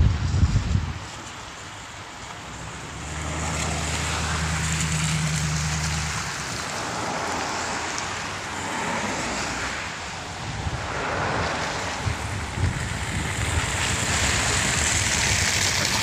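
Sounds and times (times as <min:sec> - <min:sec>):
tyres hissing on wet road: 0:00.0 - 0:16.0
truck engine running: 0:10.1 - 0:16.0.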